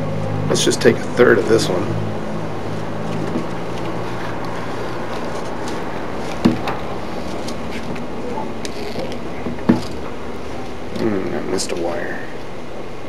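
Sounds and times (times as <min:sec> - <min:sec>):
steady background hum: 0:00.0 - 0:13.0
wire being handled: 0:02.6 - 0:11.1.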